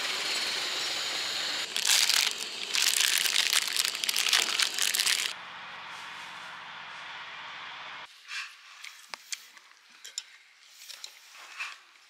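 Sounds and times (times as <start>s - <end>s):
plastic pouch crinkling: 1.7s - 5.4s.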